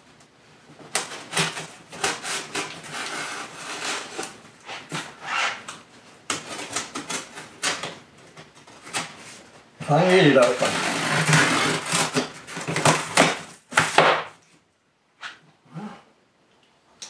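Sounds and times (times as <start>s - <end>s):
packing tape tearing: 0.9s - 8.0s, 10.2s - 14.3s.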